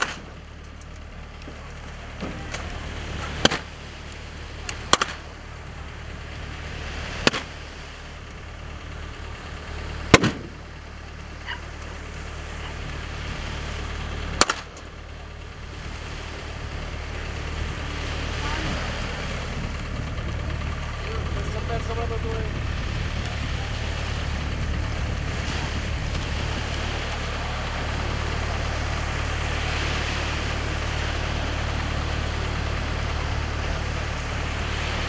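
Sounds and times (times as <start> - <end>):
low rumble: 0.0 - 35.0
rifle shots: 10.1 - 10.5.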